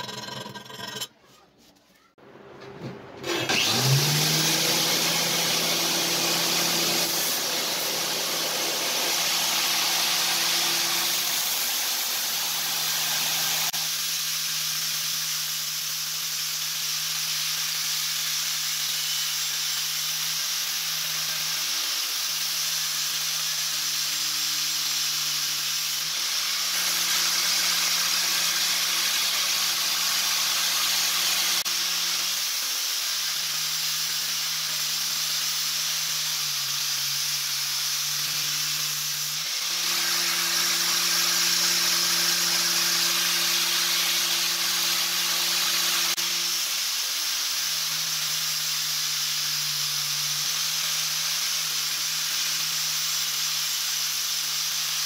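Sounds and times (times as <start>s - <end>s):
steel grinding on abrasive belt: 0.0s - 1.2s, 3.4s - 55.0s
belt grinder motor: 3.2s - 55.0s.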